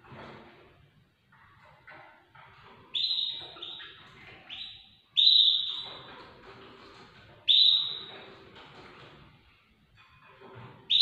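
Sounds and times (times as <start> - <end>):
finch calling: 2.9 - 6.0, 7.5 - 8.1.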